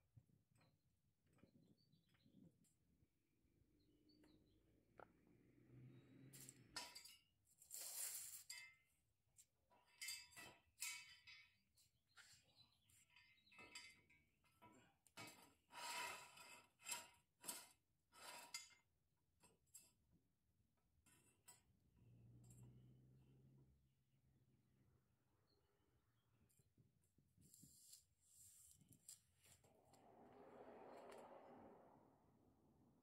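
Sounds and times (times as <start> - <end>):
metal jack stands clinking and scraping: 6.4 - 8.9, 9.7 - 11.8.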